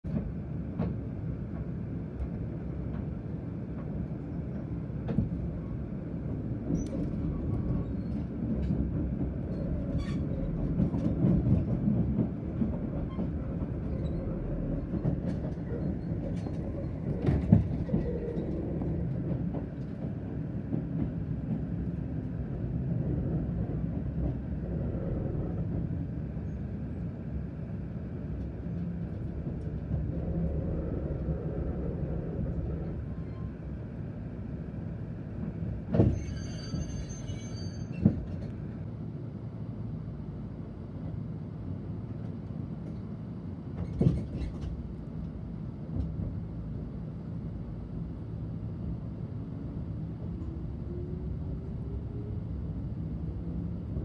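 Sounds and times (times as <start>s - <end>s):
train cabin rumble: 0.0s - 54.0s
rail clicks and clacks: 0.1s - 34.6s, 35.2s - 38.9s, 42.2s - 47.2s.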